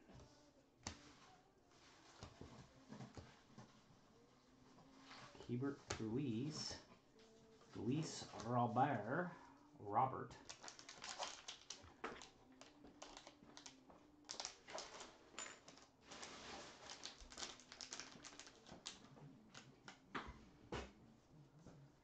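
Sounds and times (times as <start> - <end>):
wrapper crinkling and tearing: 10.4 - 19.7.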